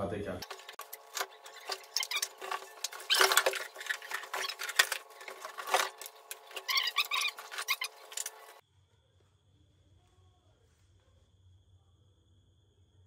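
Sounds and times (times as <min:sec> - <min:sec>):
cardboard and plastic rustling: 0:00.4 - 0:08.6.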